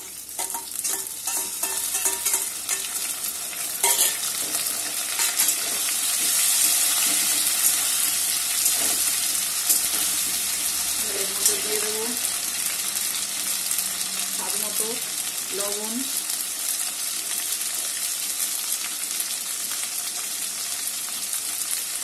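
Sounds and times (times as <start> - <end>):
metal spatula scraping a pan: 0.0 - 3.2, 3.8 - 7.8
food sizzling in hot oil: 0.0 - 22.0.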